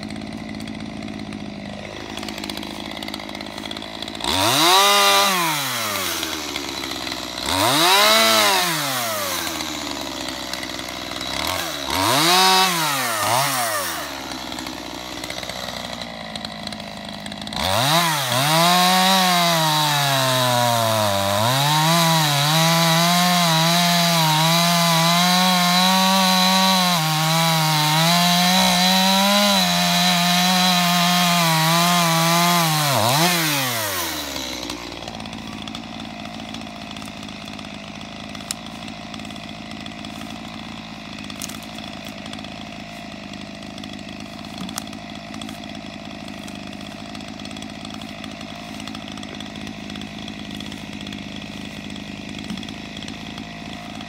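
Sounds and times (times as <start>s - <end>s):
chainsaw cutting a log: 0.0s - 54.0s.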